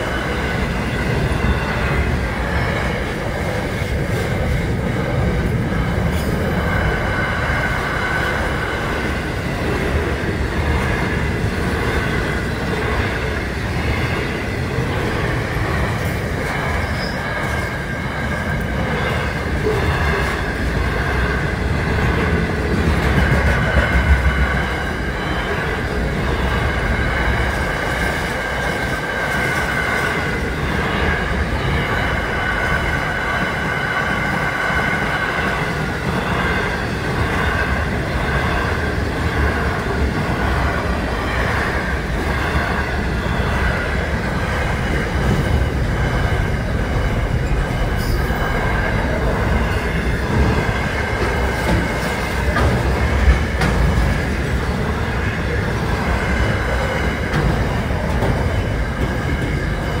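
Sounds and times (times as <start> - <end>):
train wheels rumbling on rail: 0.0 - 60.0
high wheel squeal: 16.7 - 17.8.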